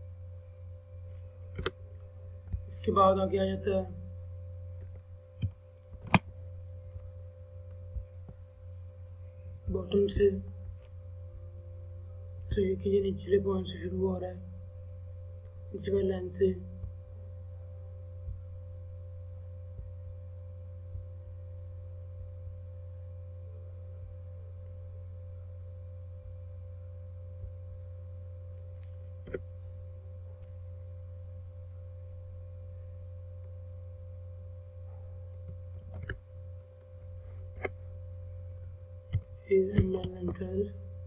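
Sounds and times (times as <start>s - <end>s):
low electrical hum: 0.0s - 41.0s
computer mouse clicks: 1.5s - 1.8s.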